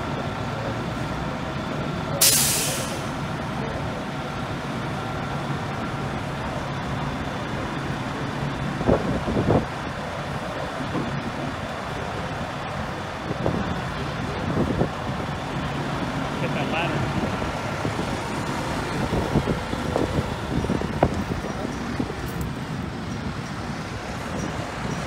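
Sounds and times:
diesel engine running: 0.0 - 25.0
air brakes hissing: 2.2 - 3.2.

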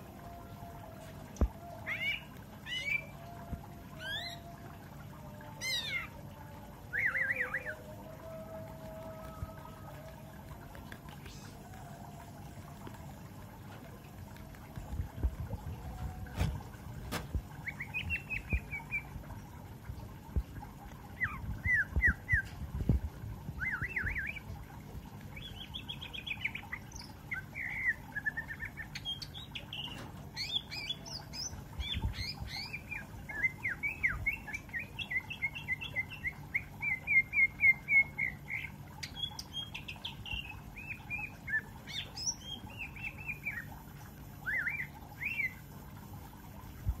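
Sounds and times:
bird singing chirps and whistles: 1.7 - 3.2, 4.0 - 4.6, 5.6 - 6.1, 6.9 - 7.9, 17.6 - 19.1, 21.2 - 22.6, 23.5 - 24.5, 25.4 - 43.8, 44.4 - 46.0.

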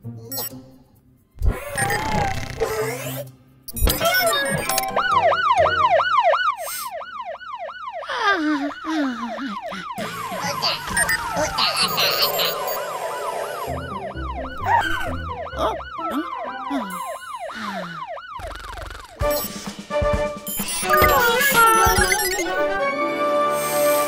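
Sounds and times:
music: 0.0 - 6.0, 10.9 - 17.1, 19.2 - 24.0
cartoon alarm siren wailing: 3.9 - 19.2, 20.5 - 22.7
gliding sound effects: 10.0 - 17.5.

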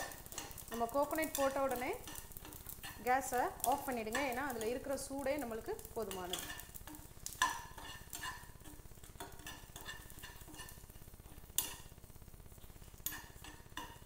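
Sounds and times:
utensil scraping metal pan: 6.1 - 11.9.

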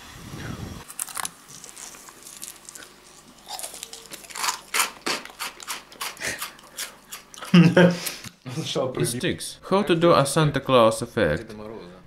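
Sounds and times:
person crunching frozen food: 0.8 - 7.5.

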